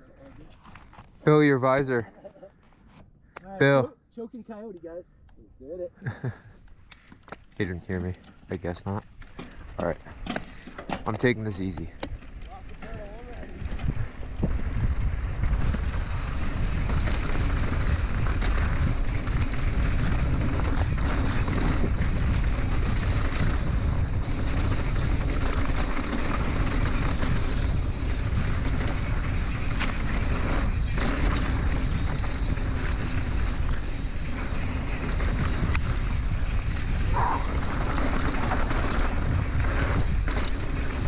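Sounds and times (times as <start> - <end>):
bike rattling over bumps: 6.8 - 41.0
bike tyres on dirt: 6.9 - 41.0
wind rumble on microphone: 11.2 - 41.0.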